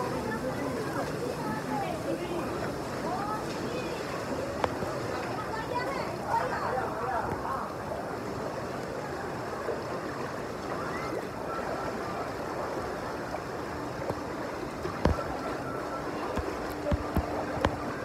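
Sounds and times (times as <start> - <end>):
water sloshing and splashing: 0.0 - 18.0.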